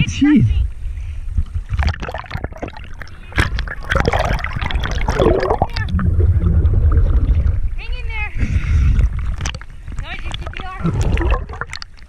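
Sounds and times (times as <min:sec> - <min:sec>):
underwater bubbly gurgling: 0:01.6 - 0:07.8, 0:08.9 - 0:12.0
water splashing: 0:01.7 - 0:12.0.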